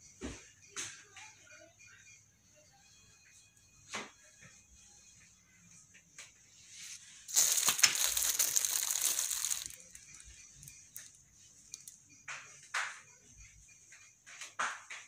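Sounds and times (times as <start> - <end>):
crinkling and rustling: 7.2 - 12.0.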